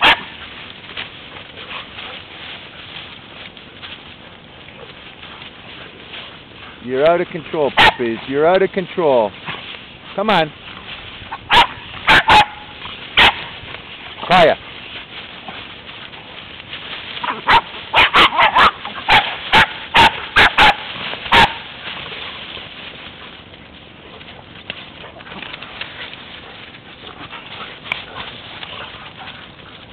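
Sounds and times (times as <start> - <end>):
puppies barking: 0.0 - 0.6, 7.6 - 8.3, 11.2 - 14.3, 17.2 - 23.4.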